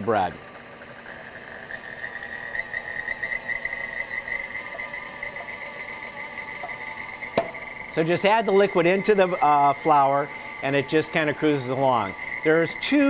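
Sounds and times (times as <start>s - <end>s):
stand mixer motor whining: 0.0s - 13.0s.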